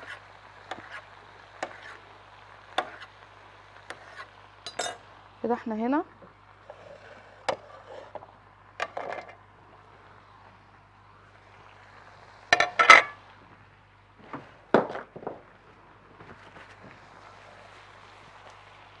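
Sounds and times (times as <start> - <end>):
dishes and utensils clinking: 4.7 - 5.0, 12.6 - 13.2
dishes clattering: 4.7 - 5.0, 12.6 - 13.2.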